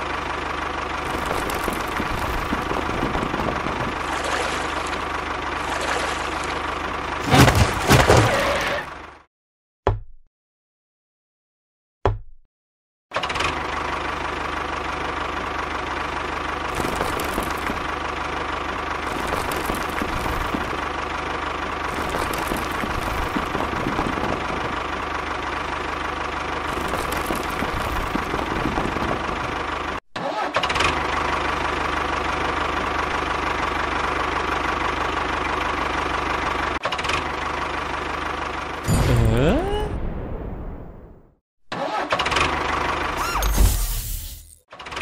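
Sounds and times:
steady high tone: 38.9 - 40.0.

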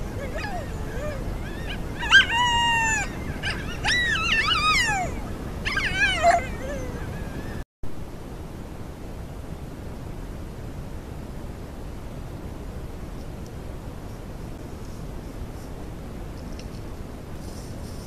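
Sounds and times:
coyotes howling and yipping: 0.0 - 7.6
steady hiss: 8.0 - 18.0.

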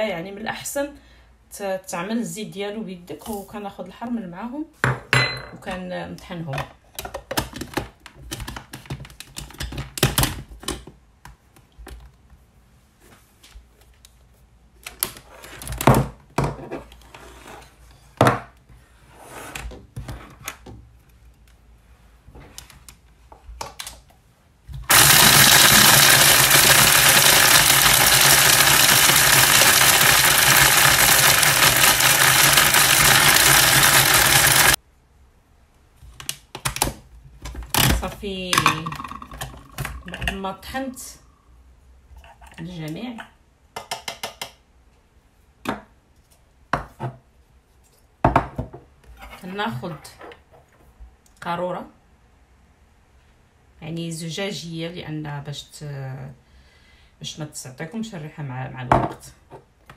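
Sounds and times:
electric grinder motor running: 24.9 - 34.8.

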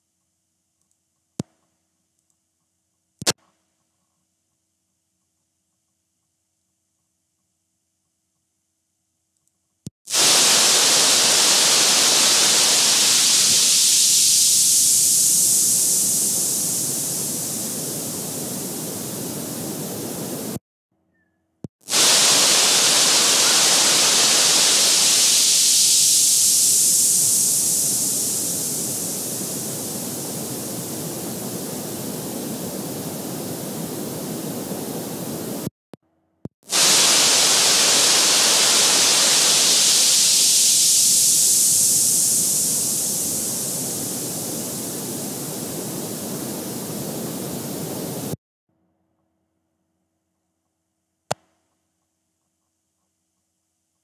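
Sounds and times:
static-like hiss: 10.1 - 20.6, 21.8 - 35.7, 36.7 - 48.4.

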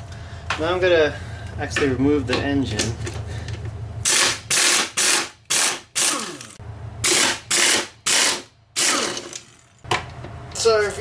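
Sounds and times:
impact wrench hammering: 4.0 - 10.0.

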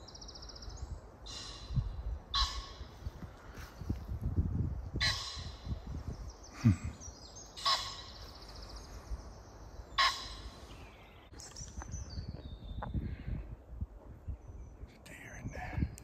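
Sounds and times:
high bird trilling: 1.2 - 2.9, 5.0 - 6.3, 7.1 - 8.7, 9.9 - 10.7
harsh bird call: 7.6 - 8.2, 9.9 - 10.7.

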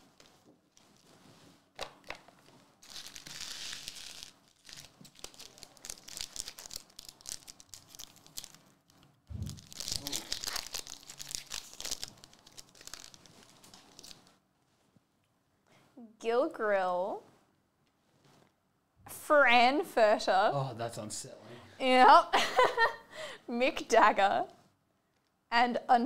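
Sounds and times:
foil wrappers crinkling and tearing: 2.8 - 14.4
soft thump: 9.3 - 9.7.

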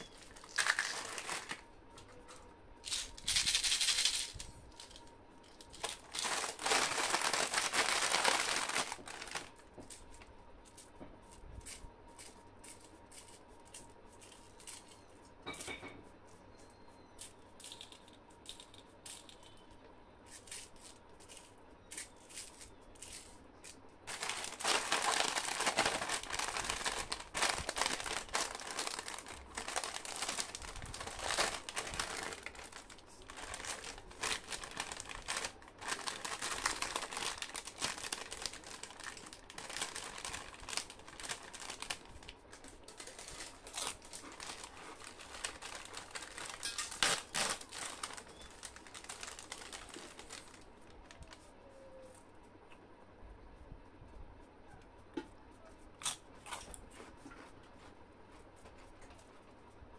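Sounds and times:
chips packet crinkling and tearing: 0.0 - 1.6, 2.9 - 9.6, 20.4 - 50.7
plastic-wrapped sweets rustling: 0.0 - 1.7, 2.8 - 13.5, 20.3 - 51.4.

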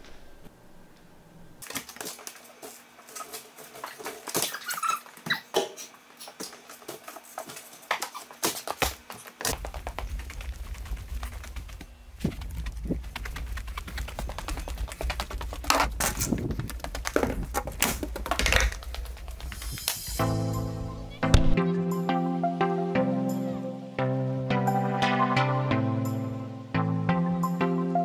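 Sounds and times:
footsteps: 6.2 - 20.3.

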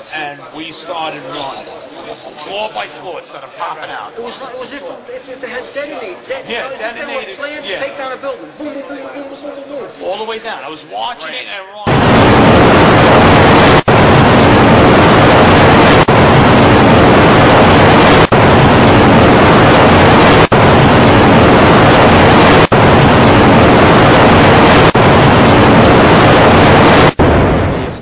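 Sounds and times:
loud static-like rushing noise: 11.9 - 28.0.

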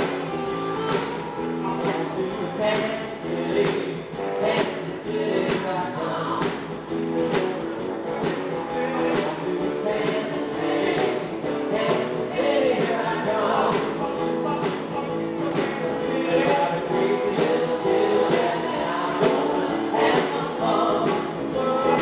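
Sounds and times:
several voices singing together: 0.0 - 6.6, 8.0 - 22.0
live band playing: 0.0 - 22.0.

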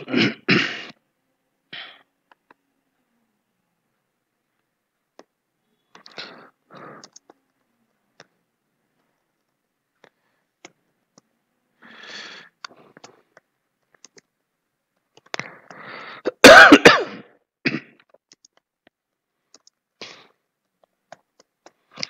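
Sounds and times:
person coughing: 0.0 - 1.0, 16.3 - 18.0
keyboard keys clicking: 7.0 - 7.4, 19.5 - 19.8.

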